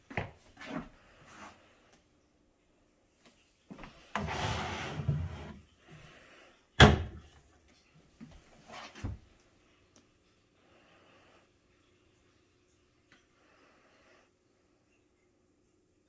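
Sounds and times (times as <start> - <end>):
drawer sliding: 4.2 - 5.6
cabinet door banging shut: 6.8 - 7.2.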